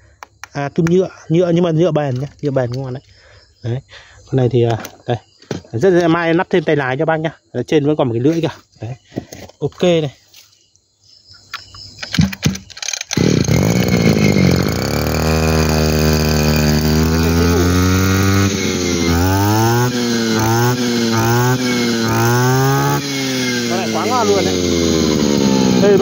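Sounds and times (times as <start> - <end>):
brush cutter engine revving: 12.8 - 26.0.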